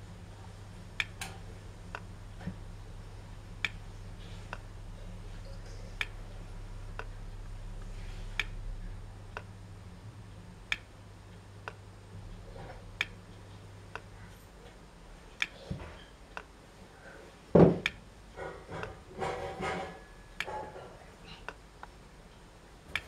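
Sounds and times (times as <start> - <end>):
stirling engine ticking: 0.0 - 14.1
low hum: 0.0 - 23.0
scattered clicks: 0.7 - 2.7, 3.4 - 9.6, 10.6 - 14.8, 16.3 - 16.6, 21.4 - 23.0.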